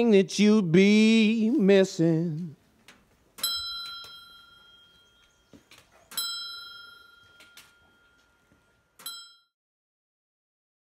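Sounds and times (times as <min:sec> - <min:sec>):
prayer wheel bell ringing: 0:03.4 - 0:09.6.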